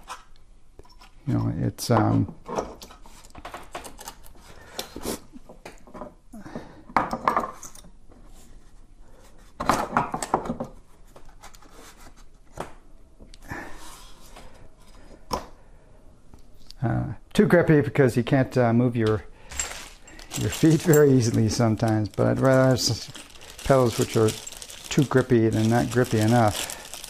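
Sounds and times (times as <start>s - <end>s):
scraping: 19.4s - 27.0s.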